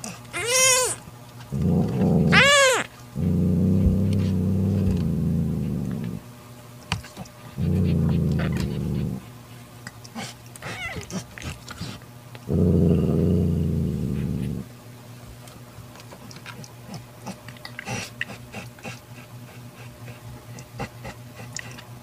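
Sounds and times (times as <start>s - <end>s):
cat growling low: 0.0s - 6.2s, 7.5s - 9.3s, 12.4s - 14.7s.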